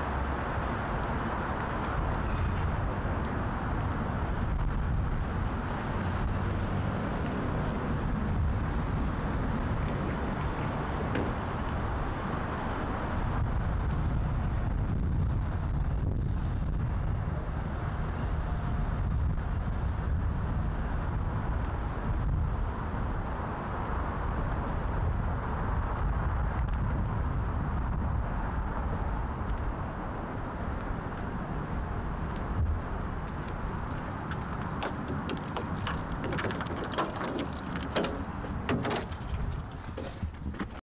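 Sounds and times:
keys jingling: 0:33.9 - 0:40.4
lock clicks: 0:34.0 - 0:40.0.

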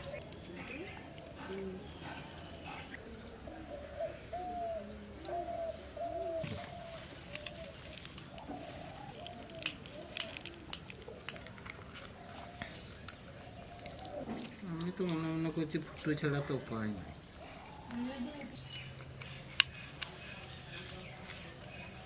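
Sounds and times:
doves cooing: 0:00.0 - 0:22.0
stick clicking on eggshells: 0:07.2 - 0:15.5.

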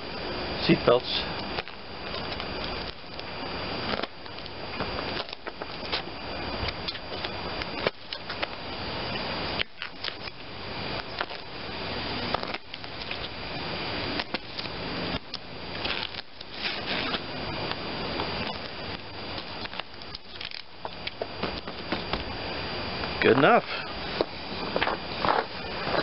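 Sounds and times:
blade clicks and crackles: 0:14.1 - 0:22.2.

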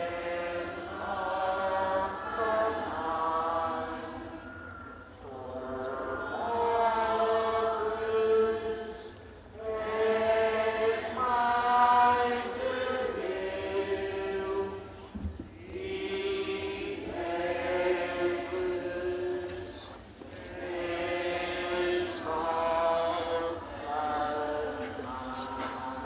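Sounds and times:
group singing a hymn: 0:00.0 - 0:26.0.

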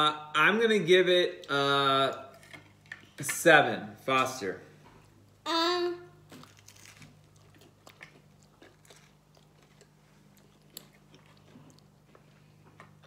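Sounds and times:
wet chewing clicks and smacks: 0:07.3 - 0:13.0.

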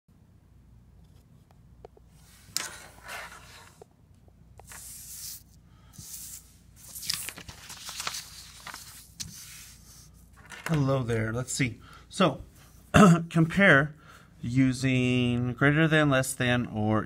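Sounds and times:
paper rustling on wooden desk: 0:02.3 - 0:03.8, 0:04.6 - 0:10.9.

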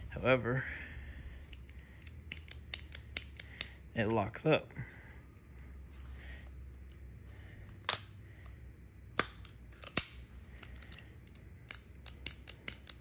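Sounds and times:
revolver dry-fire clicks: 0:01.5 - 0:03.8.

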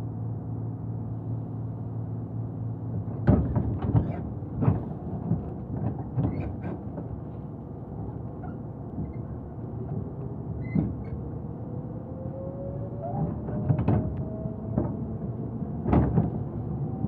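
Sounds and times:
train wheels rumbling on rail: 0:02.9 - 0:11.5, 0:13.0 - 0:17.0
train car clunking and rattling: 0:03.0 - 0:11.3, 0:13.2 - 0:15.1, 0:15.8 - 0:16.7.

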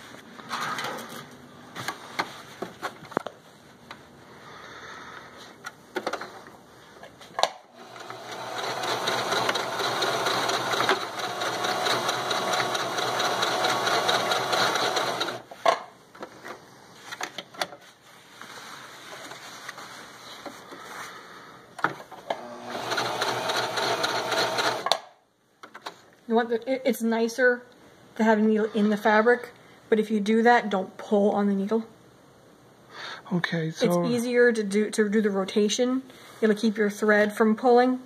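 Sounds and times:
sewing machine stitching: 0:07.8 - 0:15.5, 0:22.3 - 0:25.0.

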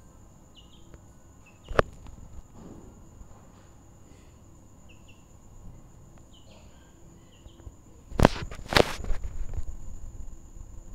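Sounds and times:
chicks peeping: 0:00.5 - 0:02.5, 0:04.8 - 0:05.3, 0:06.2 - 0:09.6.

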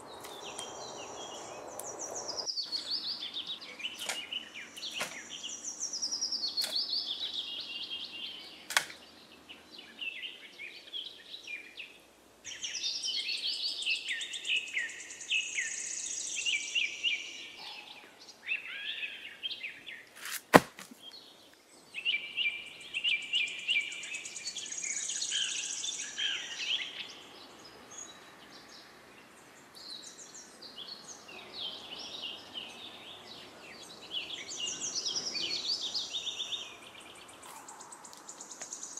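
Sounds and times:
songbirds chirping: 0:00.0 - 0:38.9
loud crack: 0:20.2 - 0:21.0.

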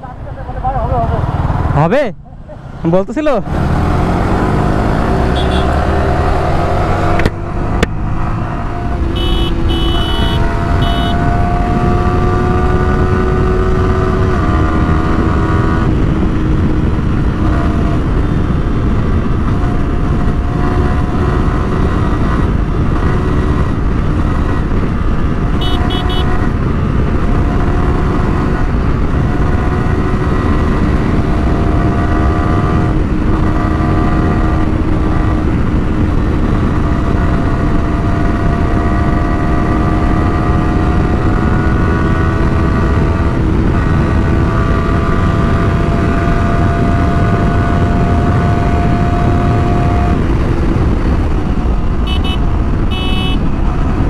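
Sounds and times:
motorcycle engine accelerating: 0:00.8 - 0:54.0
wind rush: 0:02.4 - 0:54.0
horn beeping: 0:05.2 - 0:05.9, 0:09.1 - 0:11.3, 0:25.6 - 0:26.4, 0:52.0 - 0:53.5.

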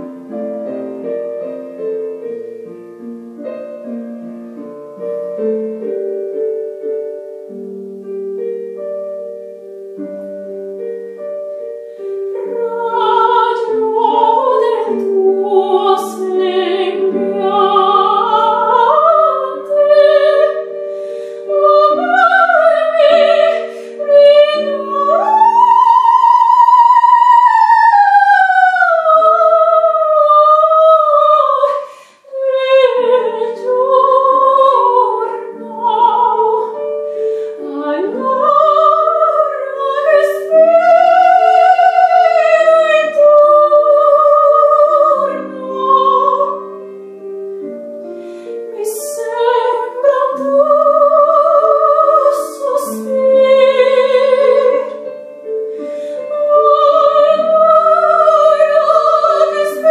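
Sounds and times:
piano accompaniment: 0:00.0 - 0:59.9
woman singing operatically: 0:12.5 - 0:46.8, 0:48.7 - 0:55.1, 0:56.1 - 0:59.9.

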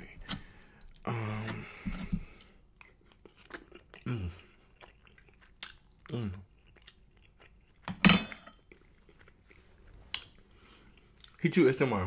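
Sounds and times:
mouth clicks and chewing: 0:02.4 - 0:07.9, 0:08.6 - 0:11.4.

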